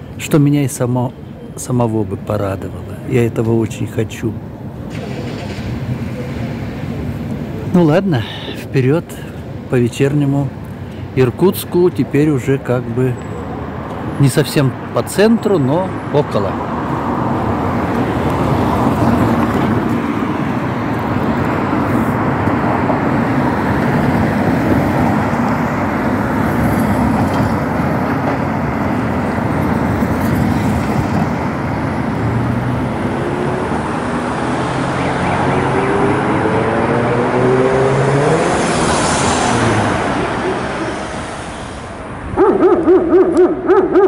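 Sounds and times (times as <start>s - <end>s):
city street traffic: 0.0s - 44.0s
vehicle engine accelerating: 17.8s - 41.5s.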